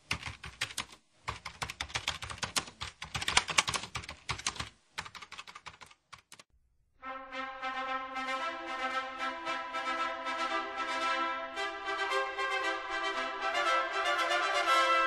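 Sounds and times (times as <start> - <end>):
rapid keyboard typing: 0.0 - 6.5
music with held notes: 7.0 - 15.0.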